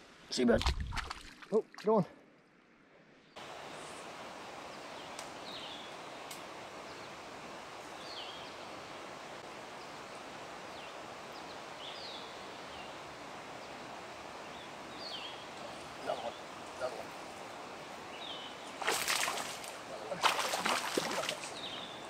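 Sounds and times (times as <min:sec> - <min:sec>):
outdoor background hiss: 0:00.0 - 0:22.0.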